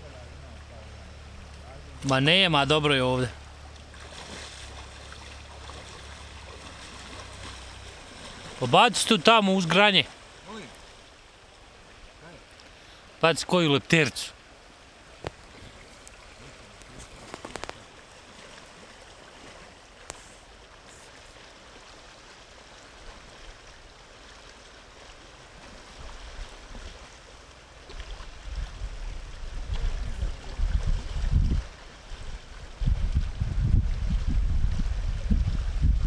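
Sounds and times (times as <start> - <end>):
river rushing over gravel: 0.0 - 36.0
wind buffeting the microphone: 28.2 - 36.0.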